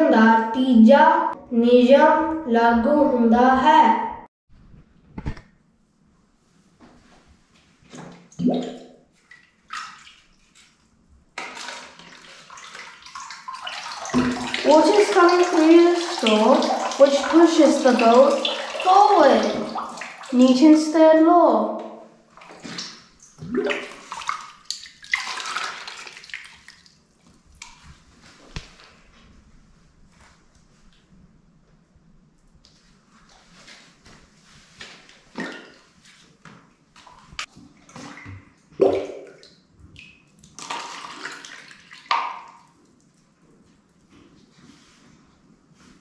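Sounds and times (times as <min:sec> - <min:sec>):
water trickling and lapping: 0:07.9 - 0:21.0, 0:22.3 - 0:28.9, 0:32.6 - 0:45.1
short splashes: 0:11.4 - 0:20.4, 0:22.4 - 0:26.9.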